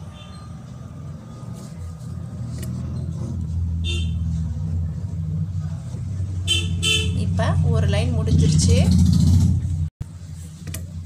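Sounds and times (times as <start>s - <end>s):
vehicle engine rumble: 0.0s - 11.0s
high horn toot: 3.8s - 4.4s, 6.4s - 7.2s.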